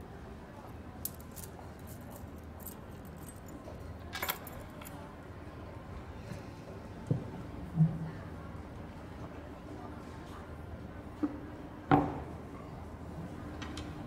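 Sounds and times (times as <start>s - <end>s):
metal chain bracelet jingling: 1.1s - 3.6s.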